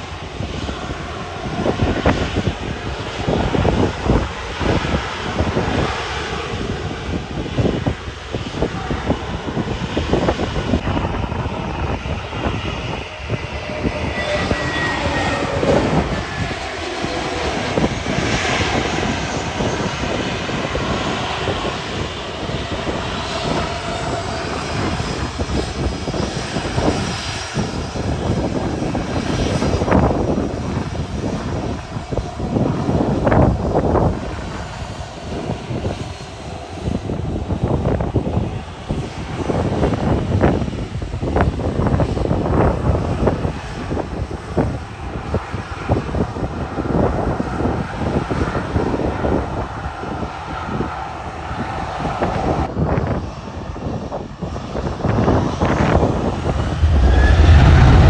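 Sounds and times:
airliner engines roaring: 0:00.0 - 0:58.0
wind buffeting microphone: 0:00.0 - 0:58.0
faint falling whine: 0:56.3 - 0:58.0.

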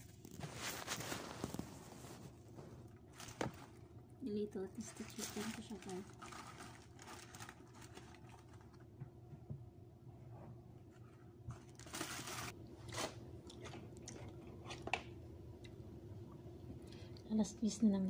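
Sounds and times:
paper wrapper crinkling: 0:00.0 - 0:02.4, 0:04.8 - 0:08.8, 0:11.5 - 0:13.2.

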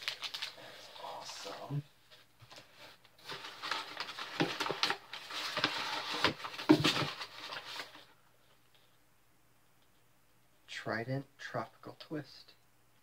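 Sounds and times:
packaging rustling and crinkling: 0:00.0 - 0:08.2.

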